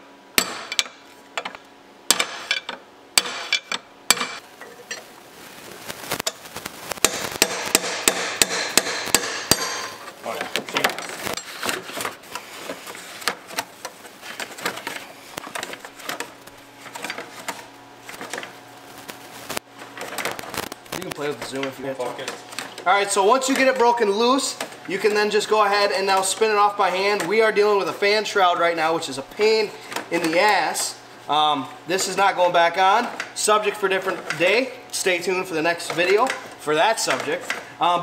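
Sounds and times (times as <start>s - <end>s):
sledgehammer striking metal bar: 0.4s - 1.0s, 2.1s - 4.4s, 7.0s - 10.0s.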